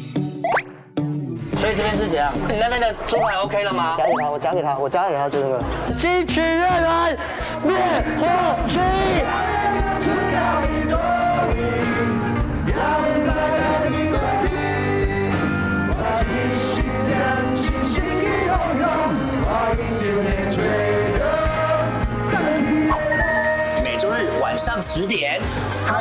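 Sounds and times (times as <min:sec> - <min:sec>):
men singing: 0:05.9 - 0:25.0.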